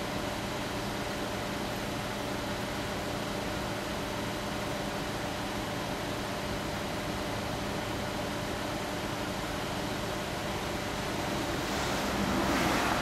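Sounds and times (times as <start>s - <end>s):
road traffic hum: 7.4s - 13.0s
vehicle passing: 11.2s - 13.0s.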